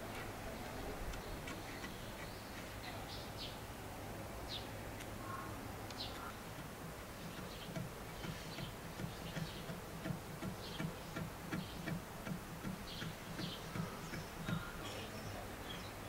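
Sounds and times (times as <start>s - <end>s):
faint bird chirps: 12.8s - 16.0s.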